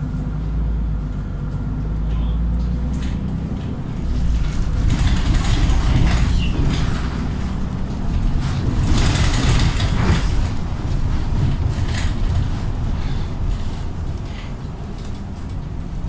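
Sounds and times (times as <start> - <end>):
bus engine and road rumble: 0.0 - 16.0.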